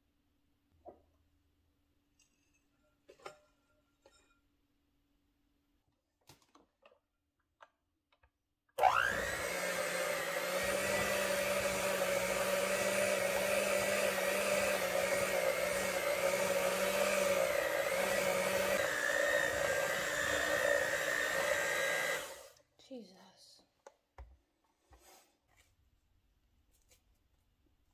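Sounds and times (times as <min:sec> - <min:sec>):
electric hand mixer whining: 0:08.8 - 0:22.6.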